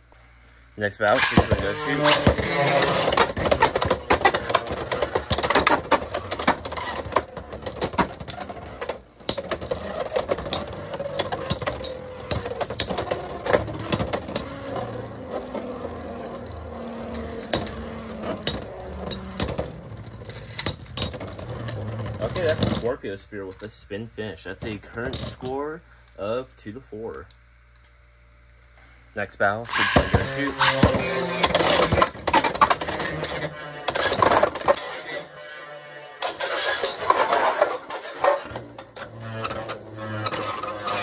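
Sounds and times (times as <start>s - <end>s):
spinning tops whirring: 1.1s - 22.6s, 29.7s - 41.0s
plastic tops clacking together: 1.2s - 14.6s.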